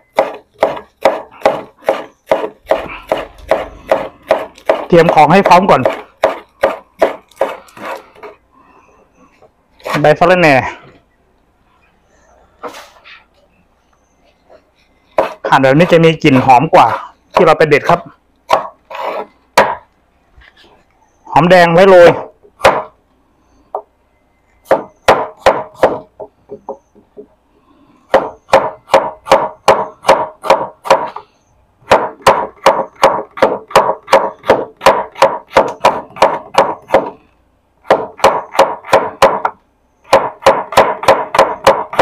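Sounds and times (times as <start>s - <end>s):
cleaver chopping on wooden board: 0.1s - 5.2s, 5.8s - 8.0s, 18.5s - 19.8s, 22.6s - 22.9s, 24.6s - 26.7s, 28.1s - 31.2s, 31.9s - 37.2s, 37.8s - 42.0s.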